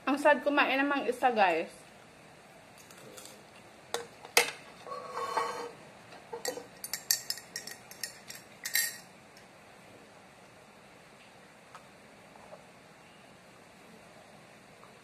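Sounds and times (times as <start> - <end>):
cutlery clinking on ceramic: 6.4 - 9.1.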